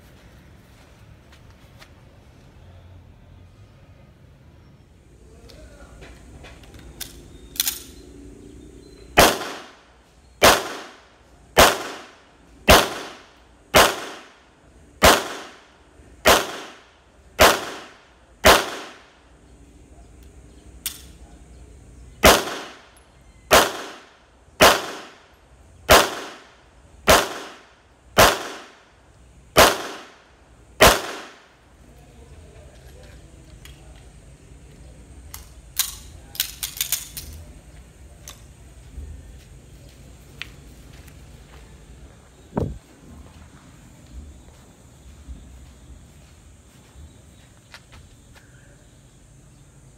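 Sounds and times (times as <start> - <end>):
pistol shots with echo: 9.2 - 14.4, 15.0 - 19.1, 22.2 - 22.9, 23.5 - 25.2, 25.9 - 28.8, 29.6 - 30.2, 30.8 - 31.5.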